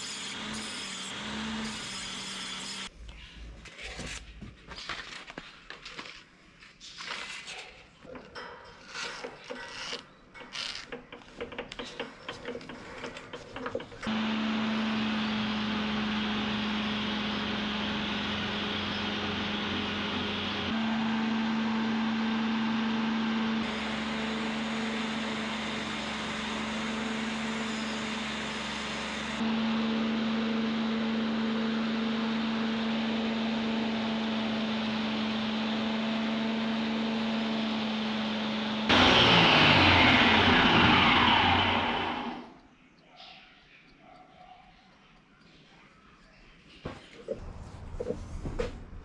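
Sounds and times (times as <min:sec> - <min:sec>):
belt grinder motor humming: 0:00.0 - 0:02.9, 0:14.0 - 0:42.5.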